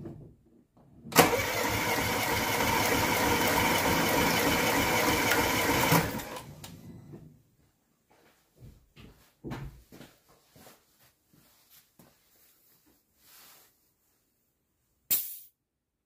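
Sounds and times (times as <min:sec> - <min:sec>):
car engine cranking on starter: 0:01.1 - 0:06.7.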